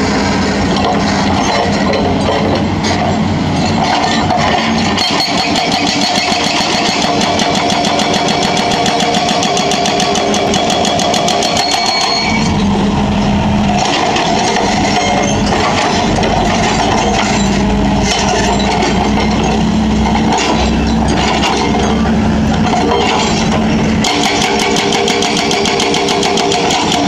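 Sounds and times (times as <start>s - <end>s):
excavator diesel engine running: 0.0s - 27.0s
hydraulic breaker hammering concrete: 4.3s - 12.5s, 22.6s - 27.0s.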